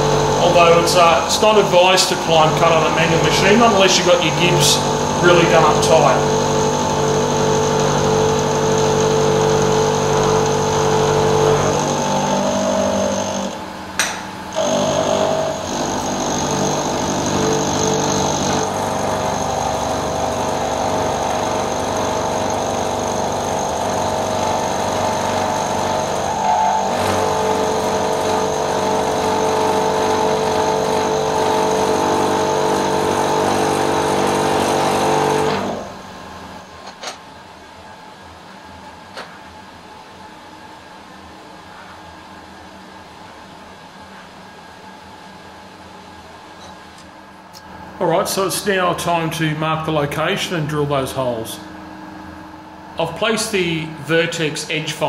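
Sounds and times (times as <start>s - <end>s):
milling machine whine: 0.0s - 36.9s.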